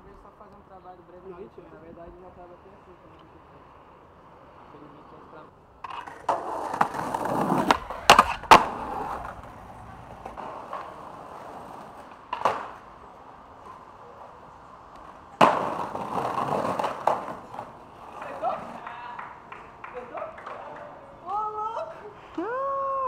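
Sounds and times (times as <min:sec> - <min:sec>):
skateboard wheels rolling: 0:01.2 - 0:23.0
skateboard clacks: 0:05.8 - 0:22.5.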